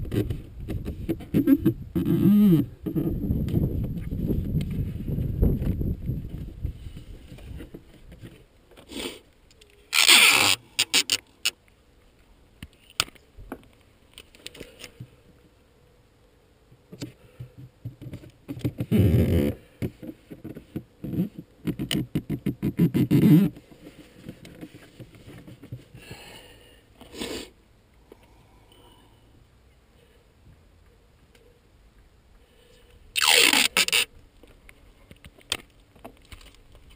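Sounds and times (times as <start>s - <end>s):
rustling and scraping: 0.0s - 15.6s, 16.9s - 26.2s, 32.6s - 36.9s.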